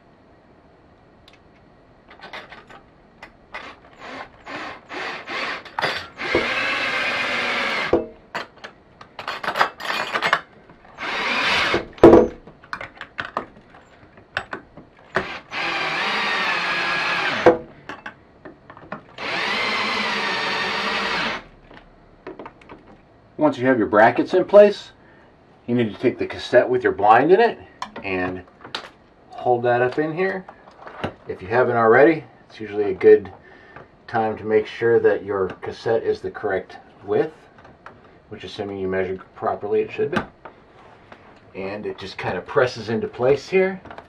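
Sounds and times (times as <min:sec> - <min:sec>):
cordless drill driving screws: 0:03.6 - 0:08.0, 0:11.0 - 0:11.9, 0:15.1 - 0:17.5, 0:19.2 - 0:21.5.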